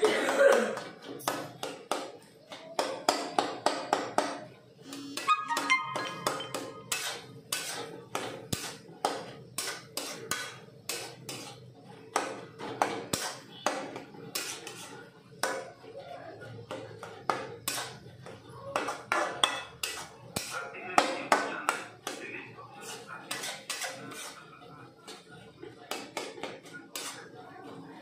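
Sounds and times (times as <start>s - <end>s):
metal spatula scraping a pan: 4.8s - 15.7s, 16.6s - 20.7s, 21.7s - 27.8s.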